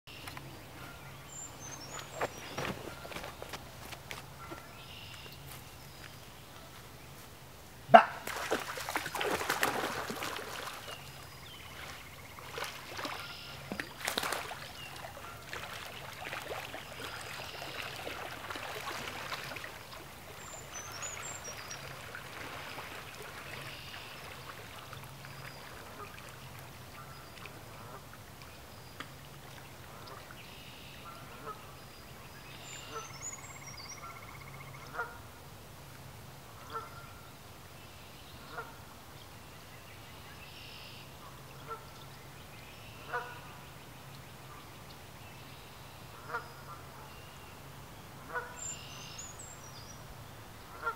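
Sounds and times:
dog splashing in water: 8.2 - 11.0, 11.8 - 14.9.

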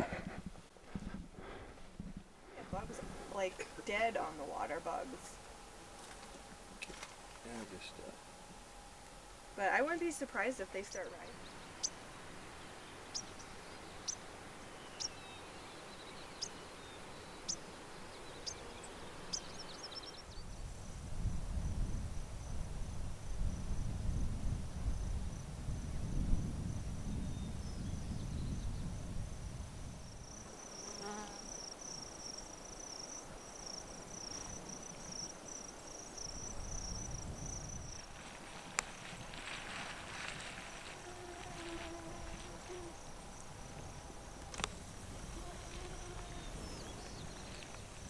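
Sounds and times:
wind rumble on microphone: 0.0 - 4.1, 20.0 - 30.4, 36.3 - 48.0
high-pitched insect trill: 30.0 - 48.0.

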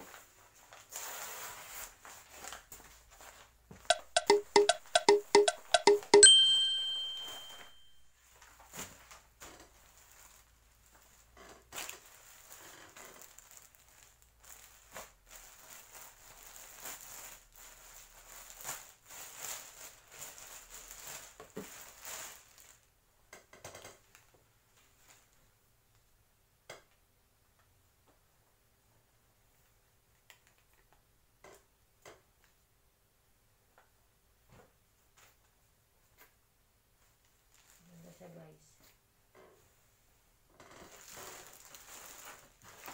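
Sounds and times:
packaging rustling and crinkling: 0.1 - 3.5, 8.4 - 22.9, 40.8 - 42.9
ringing musical note: 3.9 - 8.1.

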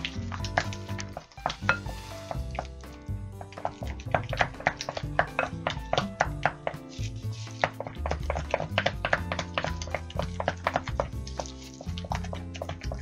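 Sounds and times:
background music: 0.0 - 13.0
spatula knocking glass bowl: 1.4 - 2.7, 3.5 - 6.8.

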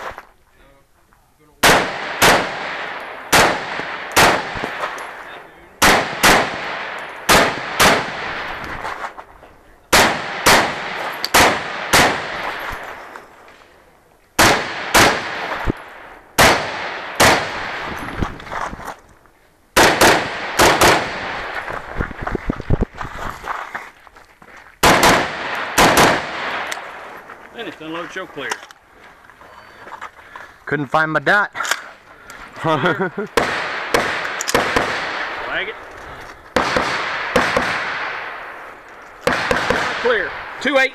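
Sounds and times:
rifle shots with echo: 1.6 - 8.9, 9.9 - 13.1, 14.4 - 18.0, 19.8 - 21.7, 24.8 - 27.2, 33.3 - 35.8, 36.5 - 40.9.

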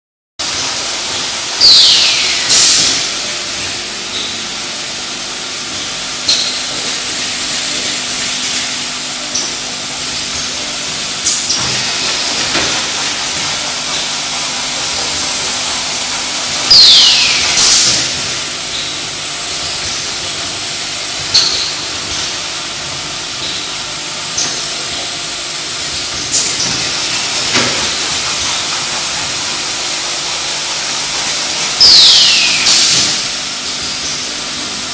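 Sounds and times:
pneumatic parts clicking: 5.7 - 23.7, 25.8 - 34.3.

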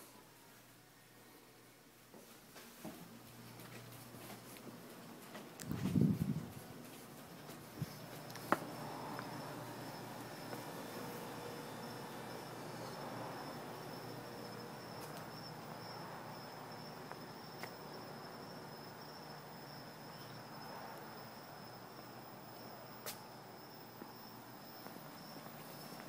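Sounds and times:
night insects trilling: 7.8 - 26.0.

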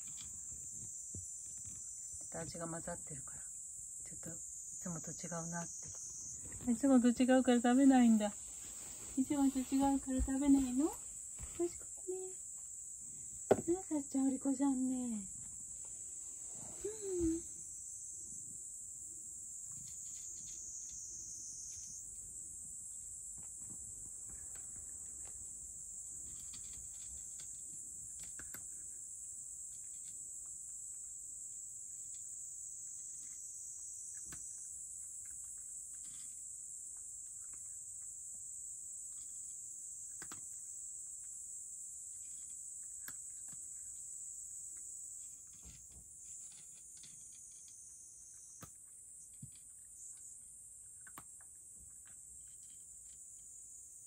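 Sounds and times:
insect chorus: 0.0 - 54.0.

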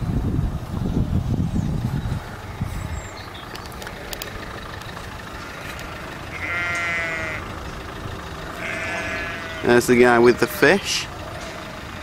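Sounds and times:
steady low rumble: 0.0 - 10.4
sheep bleating: 5.4 - 7.5, 8.5 - 11.1.

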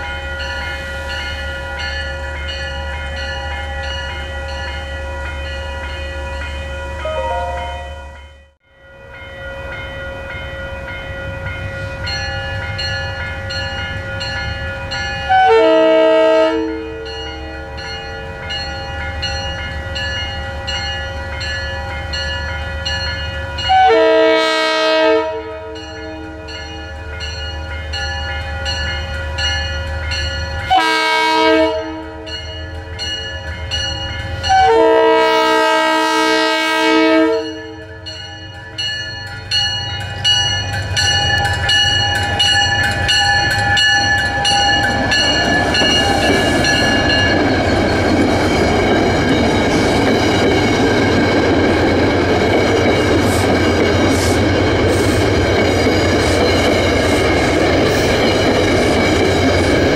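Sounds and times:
crossing warning bells ringing: 0.0 - 59.9
low train rumble: 0.0 - 59.9
train horn: 6.9 - 8.3, 15.3 - 17.8, 23.6 - 27.0, 30.7 - 32.4, 34.5 - 38.0.

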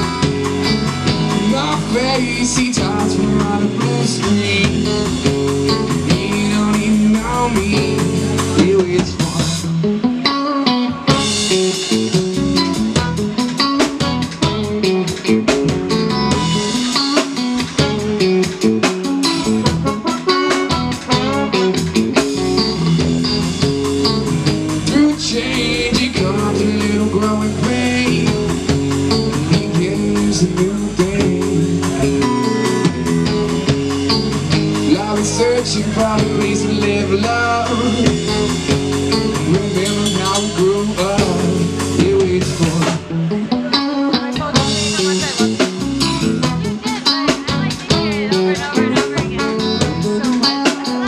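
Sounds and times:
bass guitar: 0.0 - 51.0
drum kit beat: 0.0 - 51.0
electric guitar: 0.0 - 51.0
trombone: 19.3 - 28.5, 29.1 - 42.8.

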